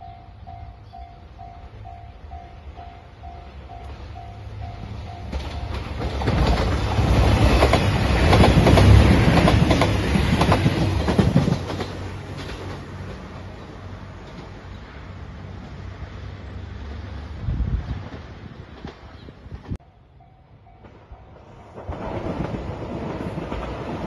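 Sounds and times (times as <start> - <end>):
diesel train passing: 0.0 - 24.0
wheels clacking over rail joints: 3.3 - 15.0, 20.7 - 24.0.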